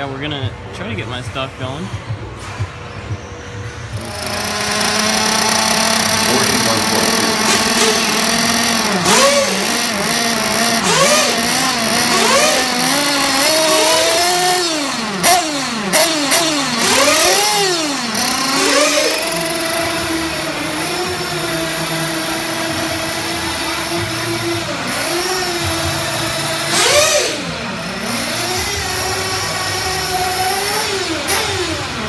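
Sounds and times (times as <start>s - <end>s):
rc buggy engines revving: 1.9s - 32.0s.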